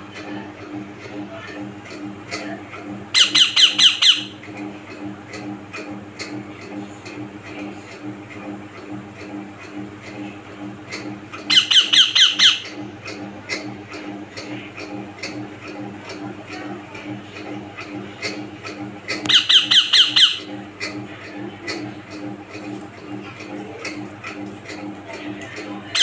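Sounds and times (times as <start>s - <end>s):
parakeet squawking: 3.2s - 4.4s, 11.4s - 12.7s, 19.3s - 20.6s.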